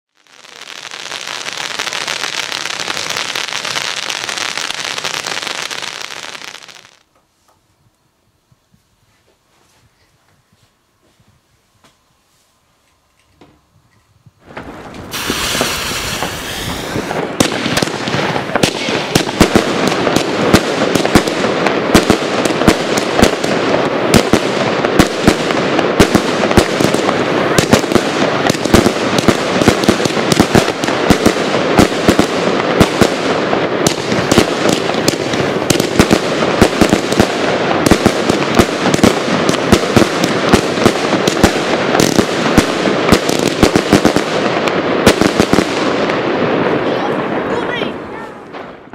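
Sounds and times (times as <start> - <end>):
fireworks hissing: 0.2 - 7.1, 14.4 - 20.6, 26.8 - 46.0
rapid firework bangs: 14.4 - 48.9.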